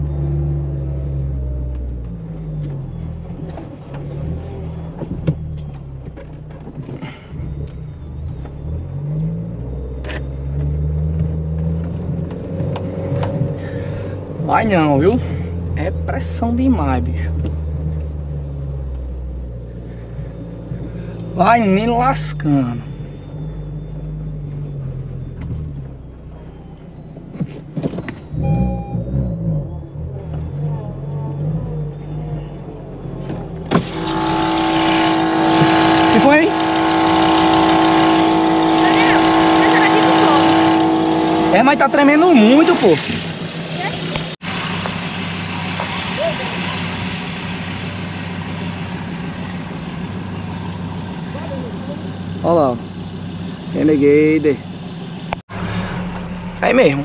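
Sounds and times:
car engine labouring: 0:00.0 - 0:57.0
short electronic beep: 0:18.4 - 0:44.1.

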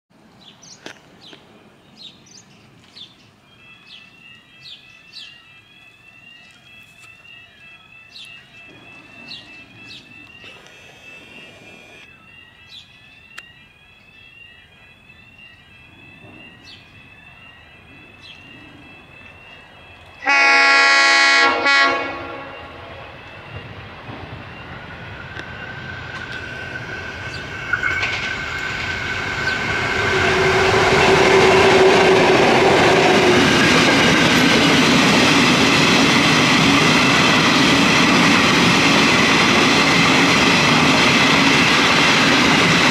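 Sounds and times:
freight train running on rails: 0:00.1 - 0:42.9
birds chirping: 0:00.4 - 0:38.6
train horn blast: 0:20.2 - 0:23.3.

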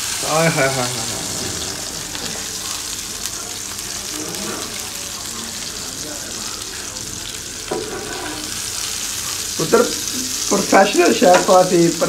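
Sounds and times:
egg sizzling on griddle: 0:00.0 - 0:12.0.

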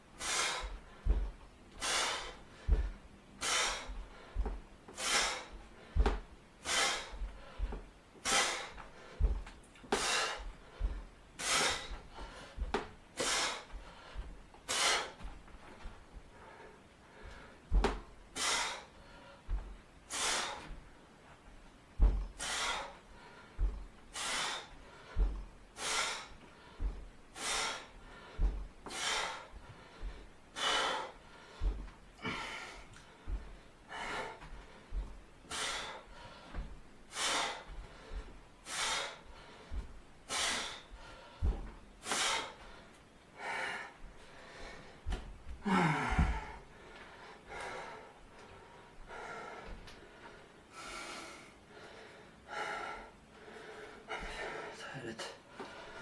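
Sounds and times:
man breathing hard: 0:00.0 - 0:56.0
faint low thumps: 0:00.7 - 0:01.6, 0:02.5 - 0:03.2, 0:08.9 - 0:09.6, 0:10.5 - 0:11.3, 0:21.9 - 0:22.4, 0:23.5 - 0:24.1, 0:25.1 - 0:25.7, 0:26.7 - 0:27.3, 0:28.2 - 0:28.8, 0:31.3 - 0:35.4, 0:41.3 - 0:41.9, 0:44.0 - 0:46.9.

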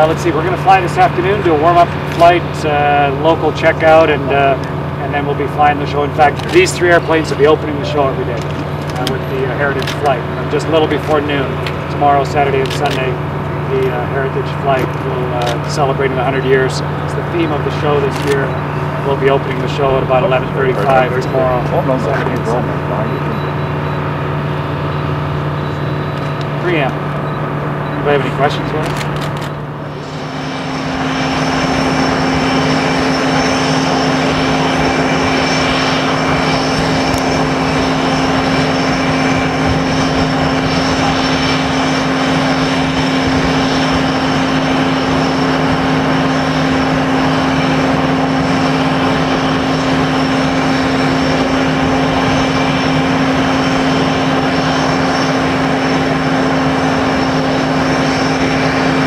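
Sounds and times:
engine running steadily: 0:00.0 - 0:59.0.

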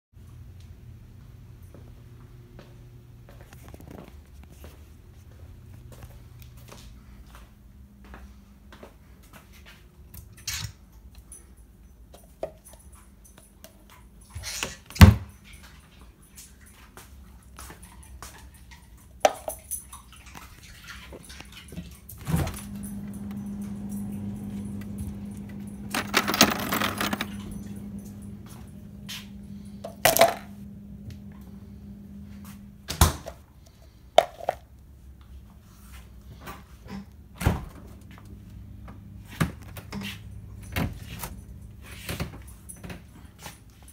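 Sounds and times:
steady low hum: 0:21.2 - 0:43.9.

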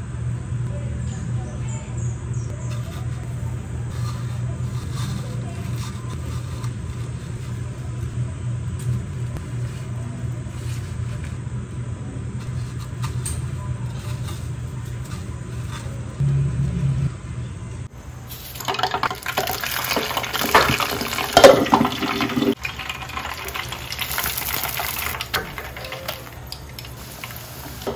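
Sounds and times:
steady low hum: 0:00.0 - 0:18.6.

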